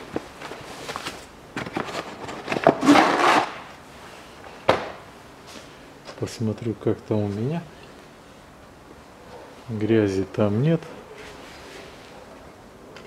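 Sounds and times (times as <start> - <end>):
paper filter rustling: 0.0 - 3.4.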